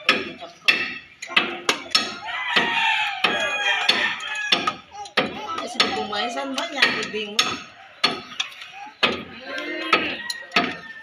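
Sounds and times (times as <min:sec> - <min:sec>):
sharp metallic knocks: 0:00.0 - 0:10.9
rooster crowing: 0:02.2 - 0:04.7, 0:09.6 - 0:11.0.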